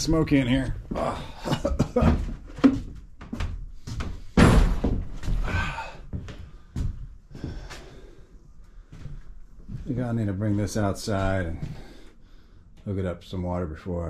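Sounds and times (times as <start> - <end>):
knocks and thumps: 0.7 - 5.7.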